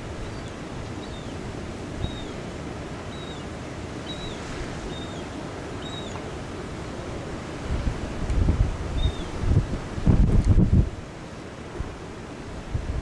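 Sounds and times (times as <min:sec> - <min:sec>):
rushing wind: 0:00.0 - 0:13.0
thin high bird call: 0:03.1 - 0:06.2.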